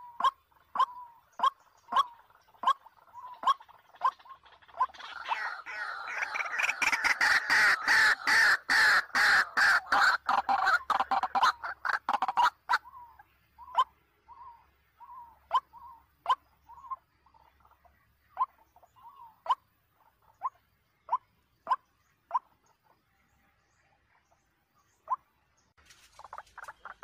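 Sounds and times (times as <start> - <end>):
waterhen calling: 0.0 - 19.6, 26.0 - 27.0.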